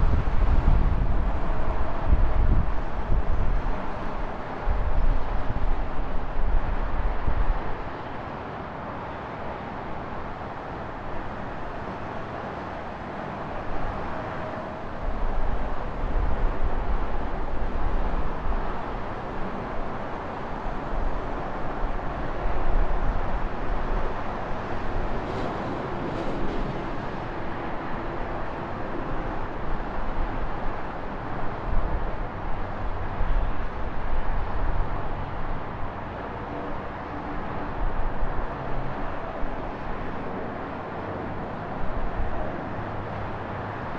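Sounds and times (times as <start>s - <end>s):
road traffic noise: 0.0s - 43.9s.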